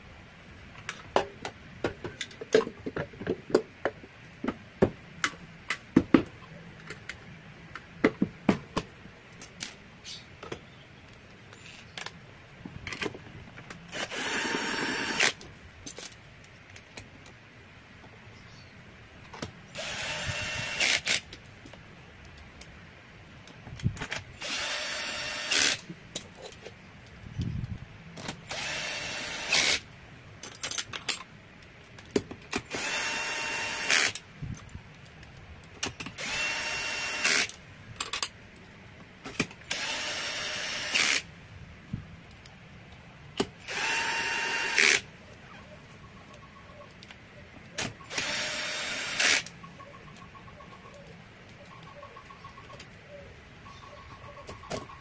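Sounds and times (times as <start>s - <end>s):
cordless drill motor whine: 13.9s - 15.3s, 19.8s - 21.2s, 24.4s - 25.8s, 28.5s - 29.8s, 32.7s - 34.2s, 36.2s - 37.5s, 39.7s - 41.2s, 43.6s - 45.0s, 48.1s - 49.5s.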